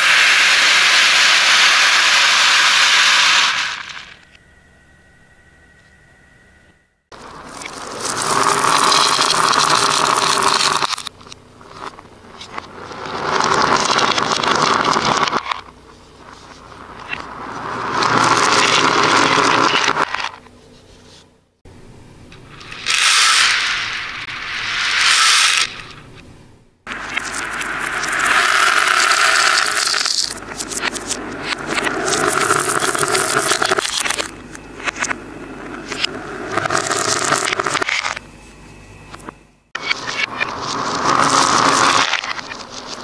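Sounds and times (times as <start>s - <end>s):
small beads pouring and rattling: 0.0s - 4.2s, 7.3s - 11.1s, 17.0s - 20.3s, 22.7s - 25.8s, 27.0s - 34.3s, 35.9s - 38.2s, 40.6s - 42.9s.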